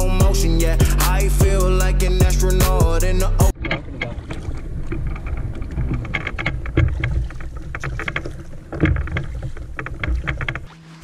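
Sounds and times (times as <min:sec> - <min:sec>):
oars splashing in water: 0:03.5 - 0:11.0
water lapping against a boat: 0:03.5 - 0:11.0.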